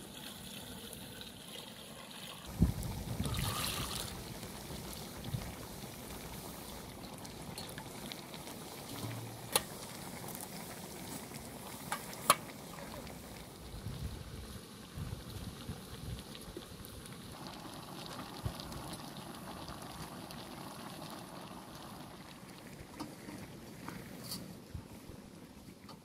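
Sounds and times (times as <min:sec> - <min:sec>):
water pouring from metal jug: 0:00.0 - 0:13.3
bubbling and sizzling pan: 0:00.0 - 0:26.0.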